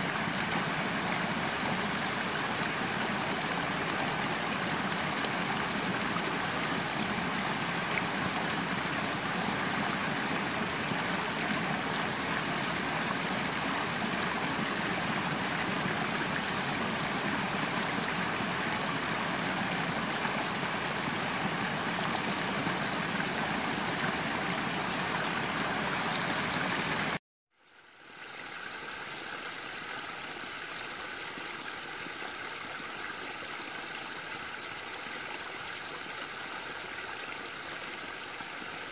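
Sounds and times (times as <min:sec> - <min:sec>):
creek rushing over rocks: 0:00.0 - 0:27.2.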